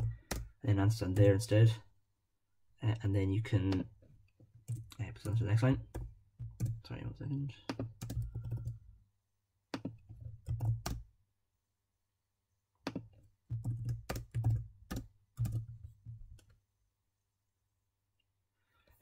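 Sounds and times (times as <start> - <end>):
typing on keyboard: 0.0 - 0.5, 7.7 - 8.8, 9.8 - 11.0, 12.9 - 15.8.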